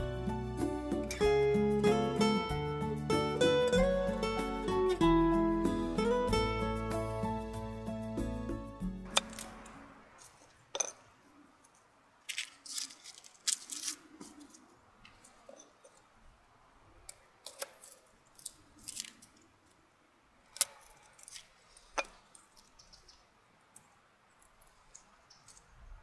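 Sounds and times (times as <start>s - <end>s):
garlic skin crackling and rustling: 12.2s - 15.3s, 17.5s - 19.8s, 20.5s - 23.0s.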